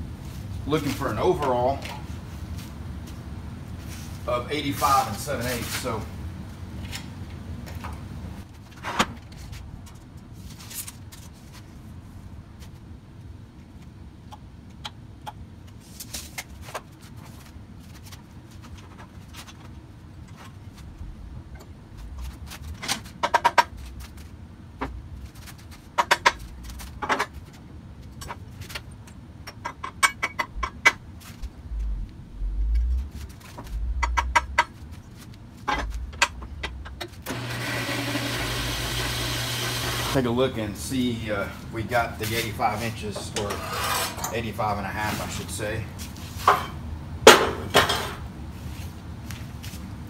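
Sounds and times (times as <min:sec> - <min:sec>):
low thumps: 0:30.4 - 0:35.0, 0:35.6 - 0:37.0
band saw motor humming: 0:37.3 - 0:40.2.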